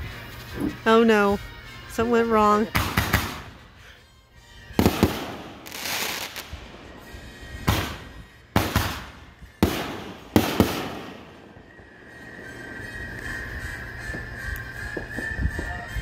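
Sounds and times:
fireworks bangs: 0:04.7 - 0:15.9
fireworks hissing crackle: 0:04.8 - 0:16.0.

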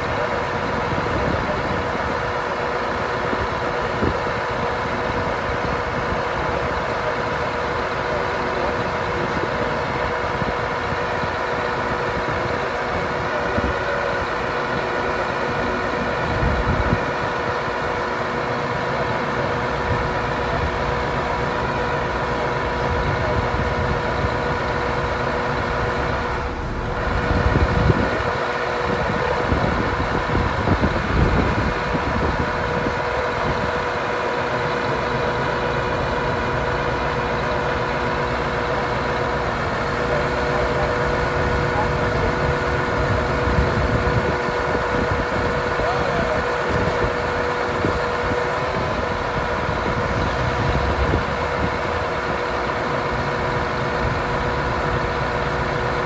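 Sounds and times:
diesel truck engine idling: 0:00.0 - 0:56.0.

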